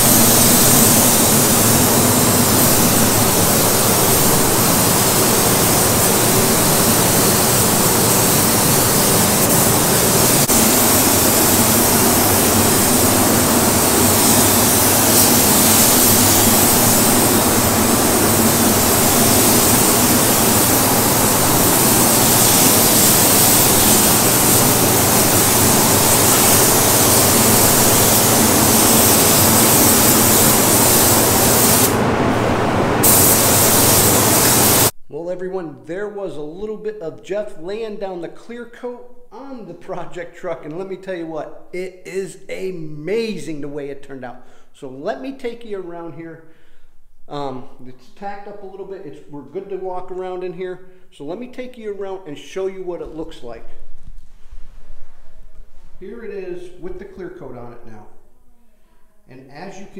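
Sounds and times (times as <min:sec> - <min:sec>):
spray gun air hiss: 0:00.0 - 0:34.9
ventilation hum: 0:00.0 - 0:59.9.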